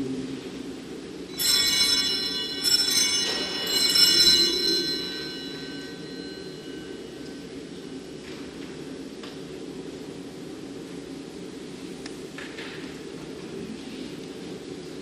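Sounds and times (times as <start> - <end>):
altar bells ringing: 1.3 - 7.7.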